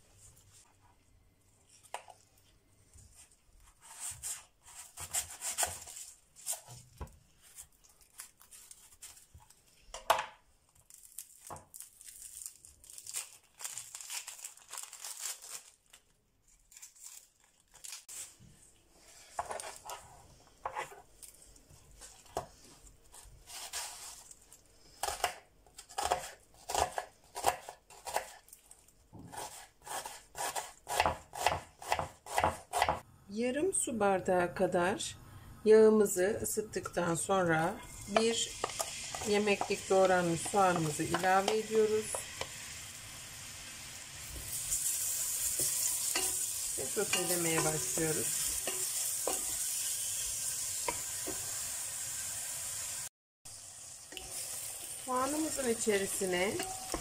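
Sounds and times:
onion skin rustling and crackling: 0.0s - 31.0s
knife chopping on plastic board: 29.2s - 33.0s.

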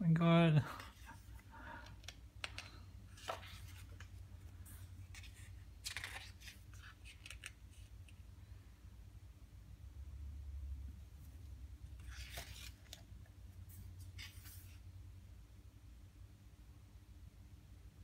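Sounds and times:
paper pages rustling: 0.8s - 8.2s, 11.4s - 14.9s.

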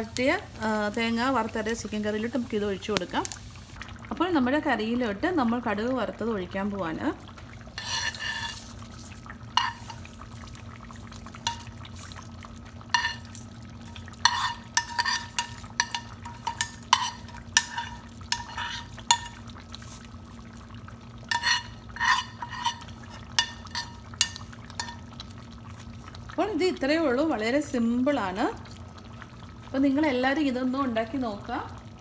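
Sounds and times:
spoon clinking against pan: 14.2s - 19.4s.

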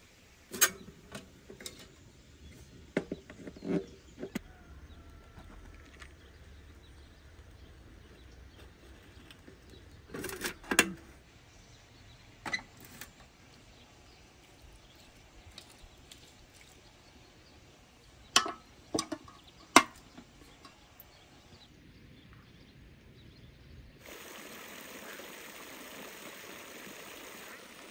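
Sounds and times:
aluminium cookware clanking: 18.3s - 20.8s
lid set on pot: 18.4s - 20.0s.

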